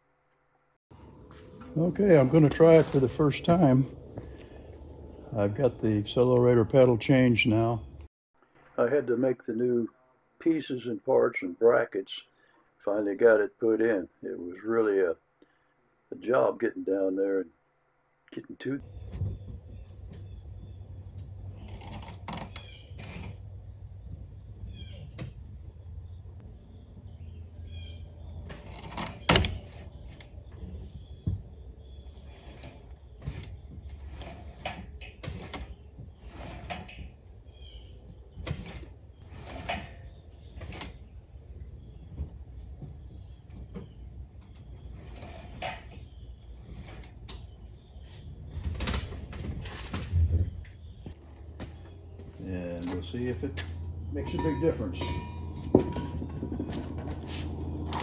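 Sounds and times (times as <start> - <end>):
low steady hum: 17.6 - 58.0.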